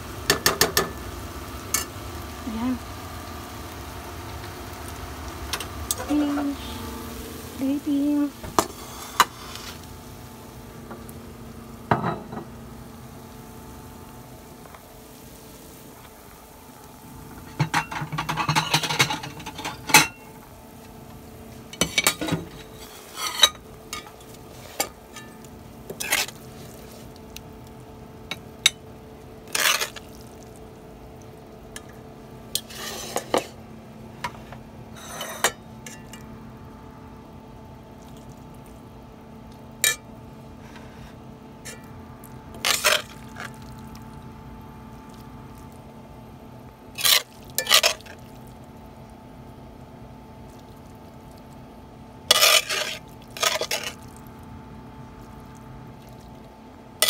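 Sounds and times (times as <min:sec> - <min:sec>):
metal spatula scraping a wok: 0:21.8 - 0:25.2, 0:26.0 - 0:26.4, 0:29.5 - 0:30.0, 0:32.6 - 0:33.5, 0:35.0 - 0:35.6, 0:42.6 - 0:43.2, 0:47.0 - 0:48.2, 0:52.3 - 0:54.0.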